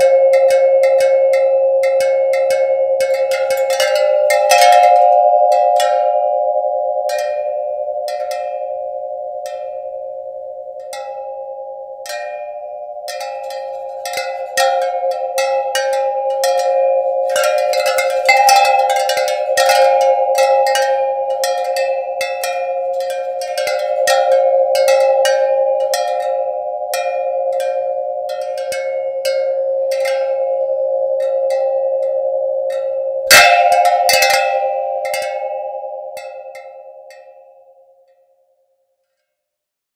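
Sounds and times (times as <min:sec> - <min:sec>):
pitched percussive ticks: 0:00.0 - 0:06.2, 0:12.1 - 0:30.6, 0:31.2 - 0:37.3
droning chord: 0:00.0 - 0:37.9.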